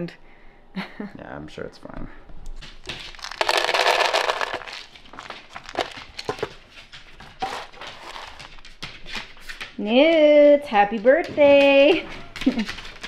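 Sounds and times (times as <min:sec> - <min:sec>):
dog kibble pouring into metal bowl: 0:03.0 - 0:06.6, 0:07.4 - 0:08.5.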